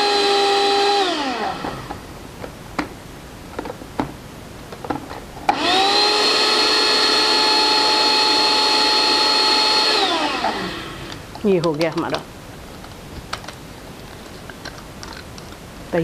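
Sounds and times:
blender motor whining: 0.0s - 2.0s, 5.5s - 11.3s.

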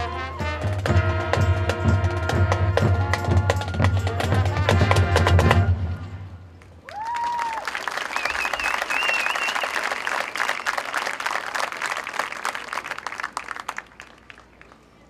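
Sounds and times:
crowd applauding and cheering: 6.6s - 14.9s
high wavering whistle: 8.1s - 10.5s.

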